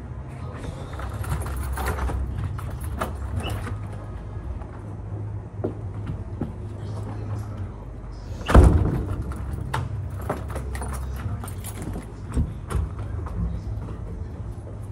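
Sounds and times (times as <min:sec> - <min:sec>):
steady low hum: 0:00.0 - 0:14.9
keys jangling and clicking: 0:00.9 - 0:03.9, 0:09.2 - 0:12.8
door shutting with a thud: 0:08.4 - 0:09.9.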